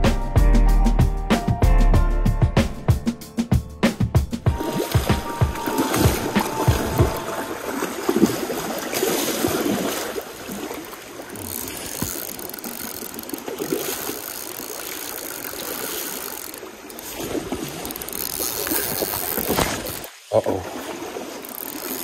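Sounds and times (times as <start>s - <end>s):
stream water rushing: 4.5s - 22.0s.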